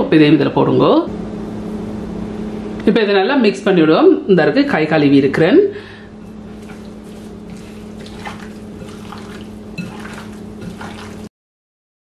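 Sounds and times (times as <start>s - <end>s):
steady low hum: 0.6s - 11.3s
hands squelching wet meat: 6.3s - 11.3s.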